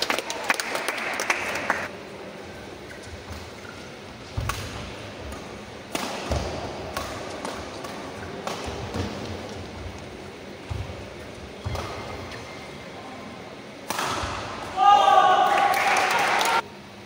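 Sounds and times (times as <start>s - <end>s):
racket striking shuttlecock: 4.3s - 9.7s, 13.8s - 14.6s.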